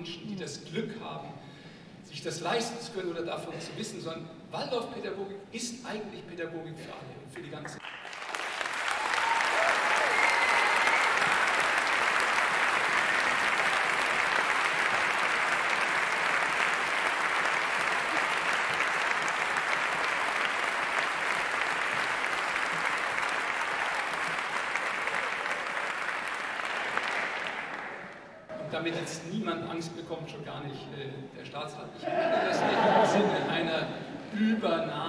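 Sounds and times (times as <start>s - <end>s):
large audience applauding: 7.7s - 28.5s.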